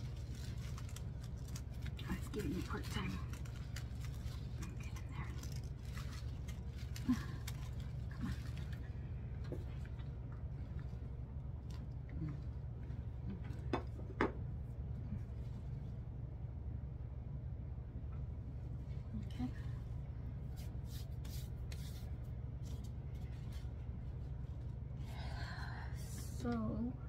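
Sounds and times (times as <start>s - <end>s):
artificial foliage rustling: 0.0s - 13.3s
steady low hum: 0.0s - 27.0s.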